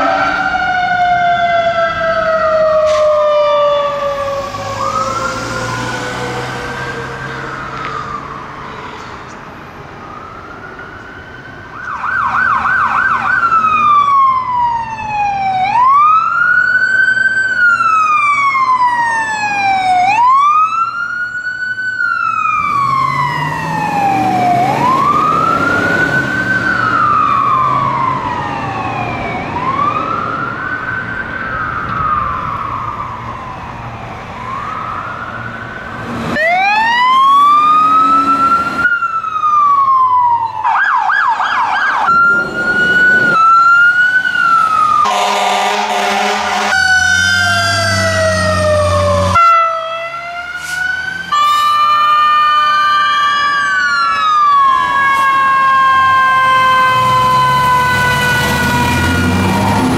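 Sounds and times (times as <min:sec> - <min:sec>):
passing vehicle engine and tyres: 0:00.0 - 0:10.4, 0:22.1 - 0:51.8, 0:54.3 - 0:59.9
ambulance siren wailing: 0:00.0 - 0:59.9
siren wail and fast yelp: 0:36.4 - 0:59.3.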